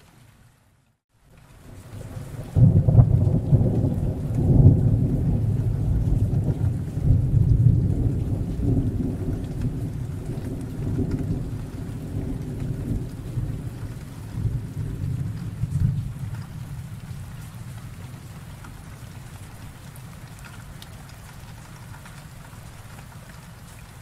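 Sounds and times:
steady rain: 0:00.0 - 0:24.0
rolling thunder: 0:01.9 - 0:18.8.

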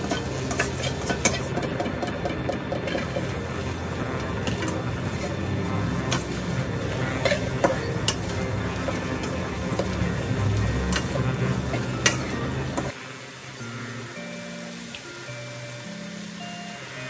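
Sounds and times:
spatula scraping a wok: 0:00.0 - 0:13.0
frying hiss: 0:00.0 - 0:17.0.

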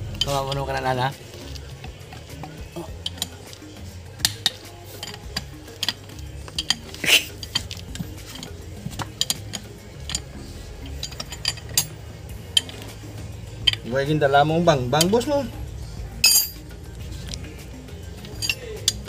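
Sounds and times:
metal tools clinking: 0:00.1 - 0:13.0, 0:13.6 - 0:15.5, 0:16.2 - 0:17.4, 0:18.1 - 0:19.0.

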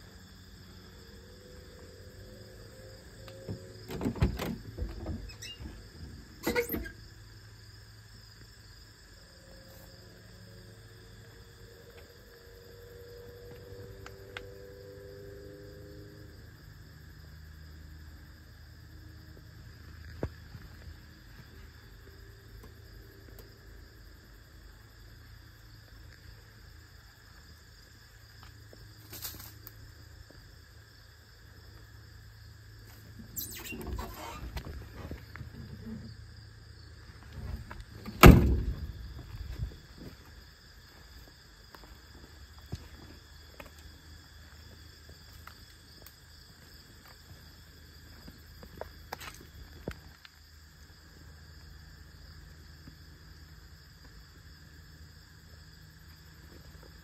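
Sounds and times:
car door thump: 0:37.4 - 0:39.0.

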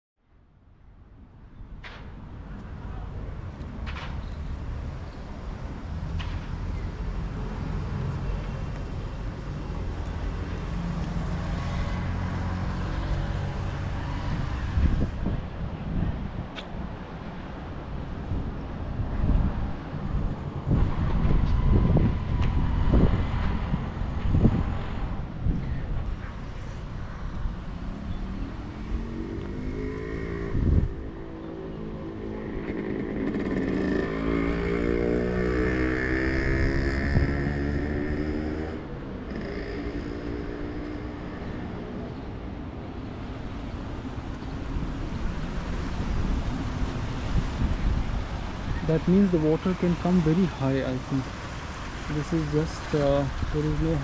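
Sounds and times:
road traffic rumble: 0:00.3 - 0:54.0
wind on microphone: 0:13.5 - 0:34.1, 0:40.4 - 0:49.3.

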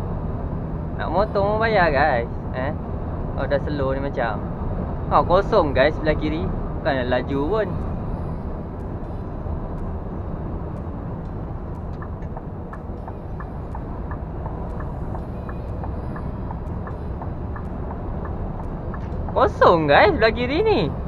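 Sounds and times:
truck diesel engine drone: 0:00.0 - 0:21.0
turn signal ticking: 0:07.6 - 0:21.0.

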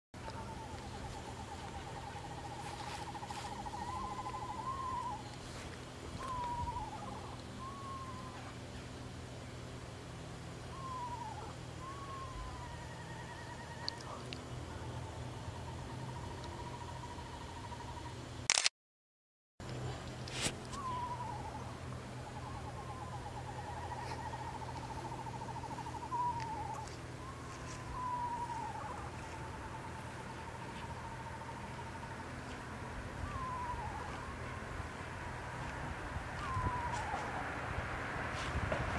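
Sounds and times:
owl trilling: 0:00.2 - 0:08.6, 0:10.7 - 0:18.1, 0:20.7 - 0:32.2, 0:33.1 - 0:34.7, 0:36.3 - 0:37.4
owl wavering descending call: 0:00.2 - 0:08.6, 0:10.7 - 0:18.1, 0:20.7 - 0:32.2, 0:33.1 - 0:34.8, 0:36.2 - 0:37.6.

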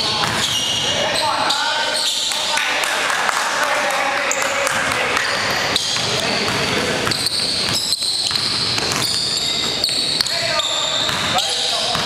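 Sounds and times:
sneakers squeaking on court: 0:00.0 - 0:02.4, 0:04.3 - 0:12.0
basketball dribbling on wooden floor: 0:05.8 - 0:10.3.

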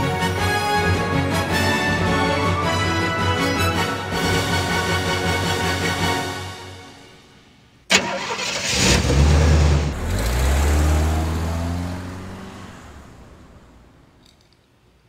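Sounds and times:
music: 0:00.0 - 0:07.5
car engine starting and revving: 0:07.9 - 0:14.2.

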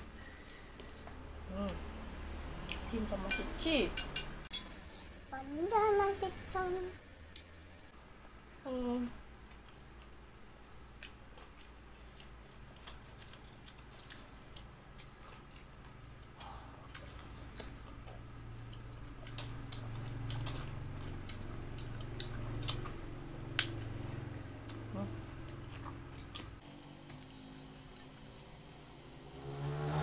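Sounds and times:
person chewing and slurping: 0:09.4 - 0:30.0.

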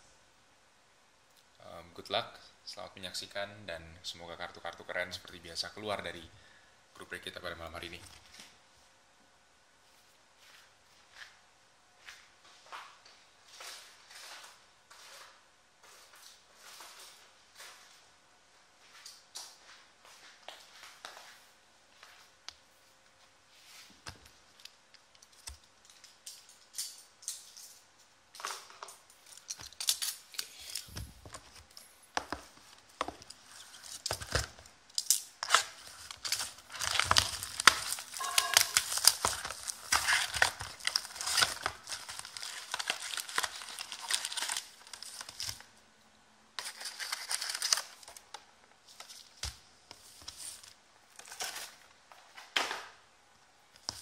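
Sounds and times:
packaging tearing and crinkling: 0:29.2 - 0:31.0, 0:33.1 - 0:45.7, 0:46.6 - 0:48.3
foil packs rustling: 0:35.4 - 0:45.7, 0:46.6 - 0:48.2.

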